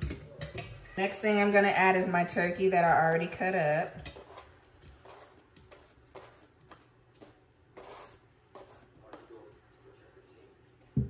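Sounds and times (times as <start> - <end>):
soft scrapes on cutting board: 7.2 - 9.9.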